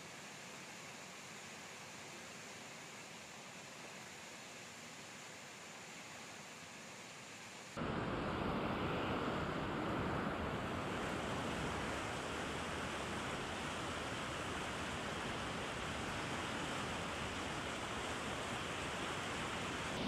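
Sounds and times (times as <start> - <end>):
faint hiss: 0.0 - 20.0
river water rushing: 7.8 - 20.0.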